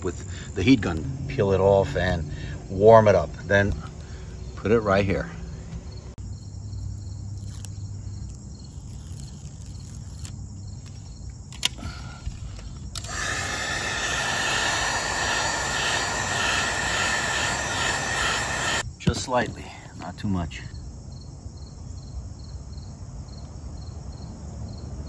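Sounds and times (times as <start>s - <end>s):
heat gun fan whirring: 12.9s - 18.8s.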